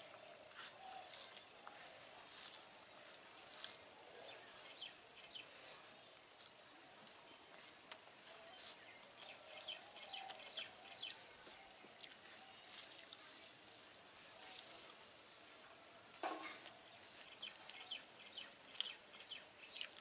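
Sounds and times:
fingers mixing rice and curry: 0:00.0 - 0:15.1, 0:16.1 - 0:20.0.

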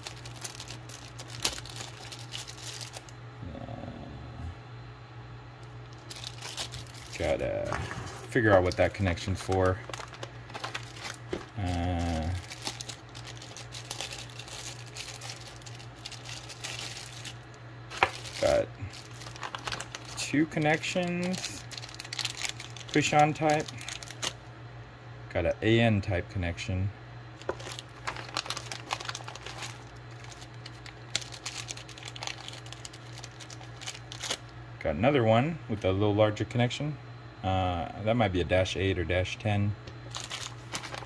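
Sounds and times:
plastic bag crinkling: 0:00.0 - 0:03.1, 0:05.9 - 0:24.4, 0:27.4 - 0:34.5, 0:40.1 - 0:41.0
steady low hum: 0:00.0 - 0:41.0
person humming: 0:03.4 - 0:04.6, 0:11.5 - 0:12.4.

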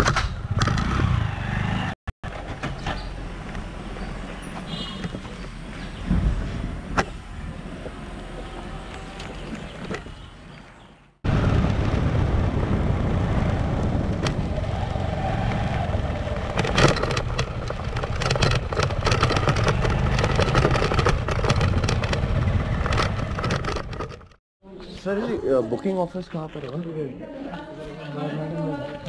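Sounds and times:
wind noise on microphone: 0:11.2 - 0:24.1.

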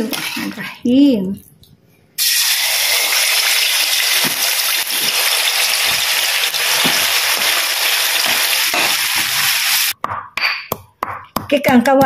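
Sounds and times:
chicken deep-frying in oil: 0:02.2 - 0:10.0.

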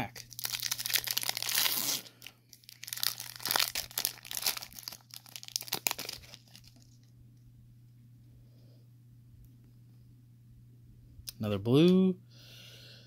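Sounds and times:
foil wrapper tearing and crinkling: 0:00.0 - 0:07.1.

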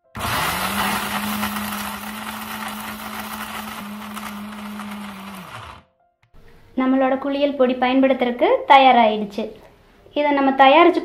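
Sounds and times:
mixer grinder motor: 0:00.0 - 0:05.8.

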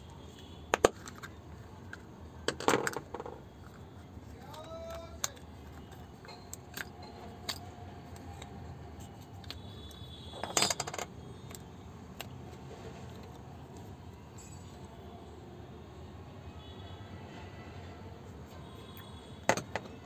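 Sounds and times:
plastic bulb parts clicking: 0:04.5 - 0:11.6.

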